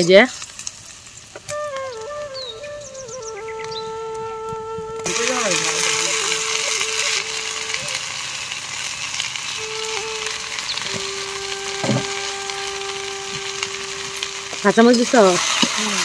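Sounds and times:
okra sizzling in a pan: 0.0 - 16.0.

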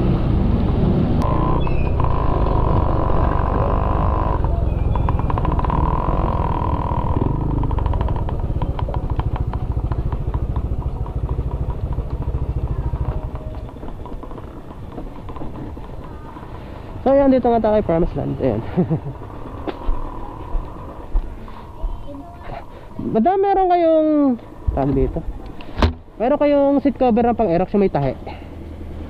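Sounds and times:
scooter engine running: 0.3 - 22.3.

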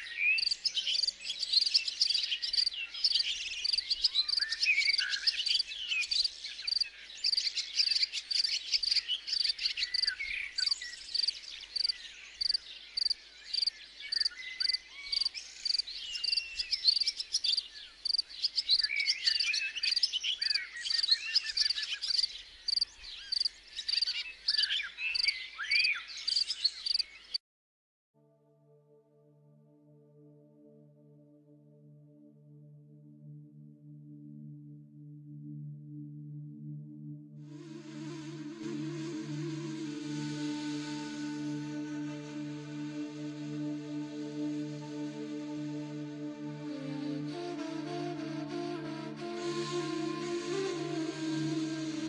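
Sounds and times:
birds singing and calling: 0.0 - 27.4
crickets chirping: 6.7 - 7.4, 11.1 - 18.3, 21.6 - 24.1.

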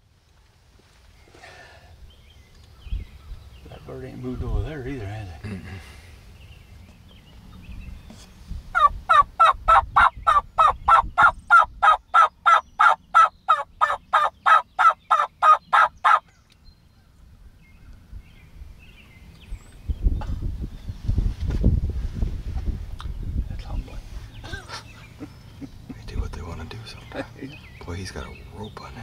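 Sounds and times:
turkey yelping: 8.7 - 16.2.

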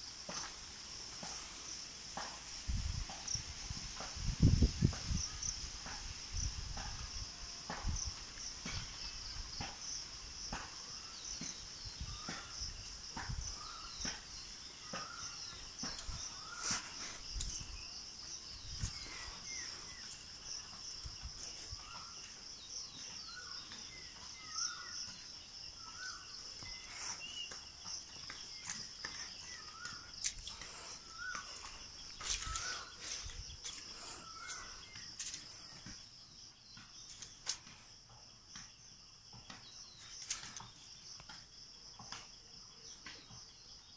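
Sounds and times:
insect drone: 0.0 - 43.9
footsteps and handling: 25.9 - 36.0.

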